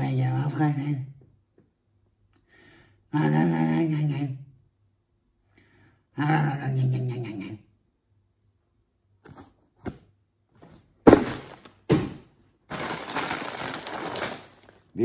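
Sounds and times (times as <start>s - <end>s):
loud thumps: 11.0s - 12.4s
plastic bags crinkling: 11.1s - 11.8s, 12.7s - 15.0s.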